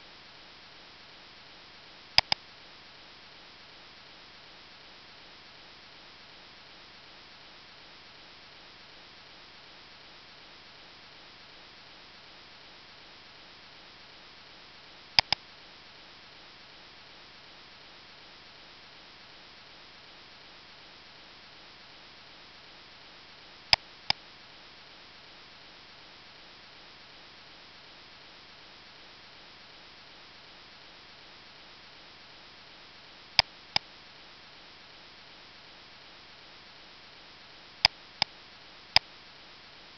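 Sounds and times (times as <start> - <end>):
microphone hiss: 0.0 - 39.9
computer mouse double-clicks: 2.2 - 2.4, 15.2 - 15.4.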